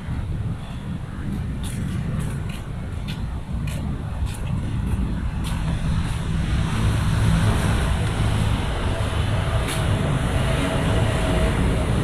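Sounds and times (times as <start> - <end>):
low rumble of city traffic: 0.0 - 12.0
light footsteps: 1.3 - 6.4.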